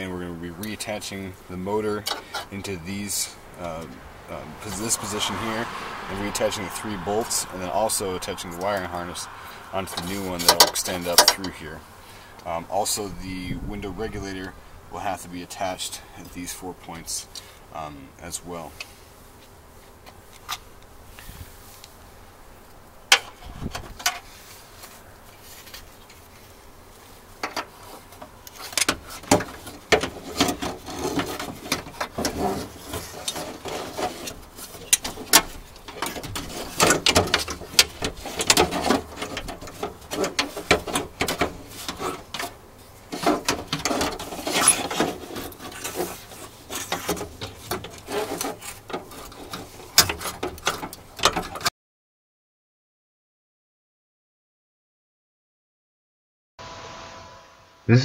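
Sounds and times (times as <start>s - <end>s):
metal and plastic clattering: 27.4s - 51.7s.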